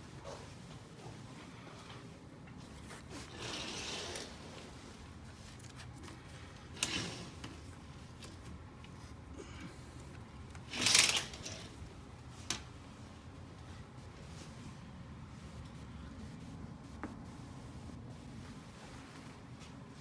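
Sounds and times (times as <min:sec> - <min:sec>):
curtain fabric swishing: 0:02.6 - 0:08.5.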